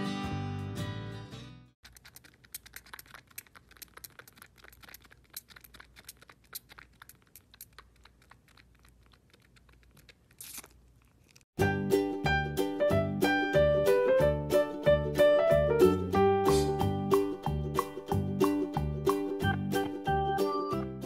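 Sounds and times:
kitten suckling clicks and smacks: 1.8s - 11.4s.

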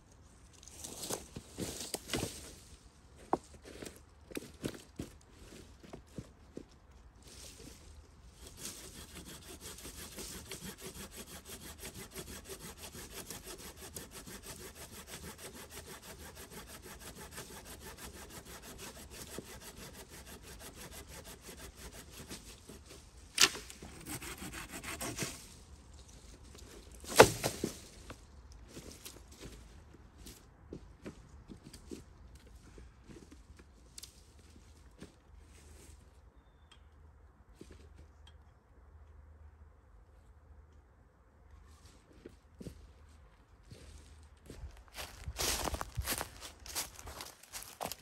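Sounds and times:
hand saw cutting branch: 8.4s - 25.5s, 27.0s - 27.8s, 45.0s - 48.0s.

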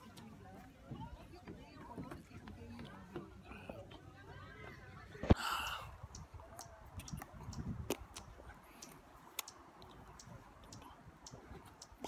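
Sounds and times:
faint sharp clicks: 6.1s - 12.0s.

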